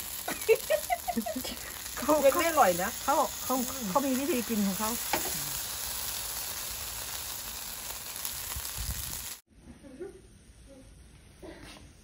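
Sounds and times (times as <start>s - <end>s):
batter sizzling in a pan: 0.0s - 9.4s.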